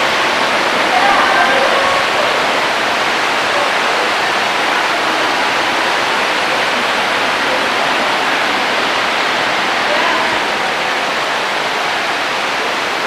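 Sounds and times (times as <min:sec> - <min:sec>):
loud steady rushing noise: 0:00.0 - 0:13.0.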